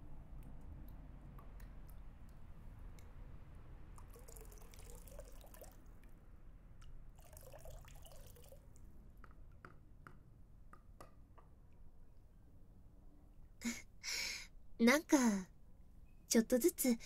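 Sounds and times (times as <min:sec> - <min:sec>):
water splashing and trickling: 0:03.9 - 0:06.0, 0:06.8 - 0:08.9.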